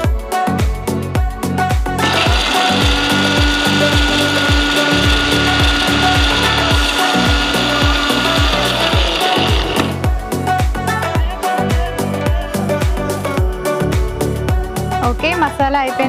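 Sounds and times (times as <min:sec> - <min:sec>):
mixer grinder whining: 0:02.0 - 0:10.0
dance beat music: 0:02.1 - 0:10.3.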